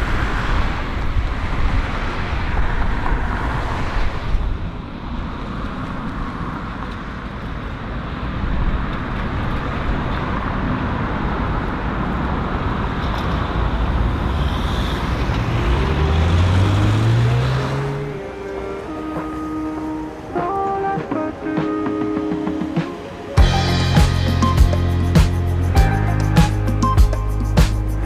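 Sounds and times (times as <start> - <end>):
cars passing: 0.0 - 28.0
low tone rising in pitch: 15.0 - 20.3, 23.4 - 28.0.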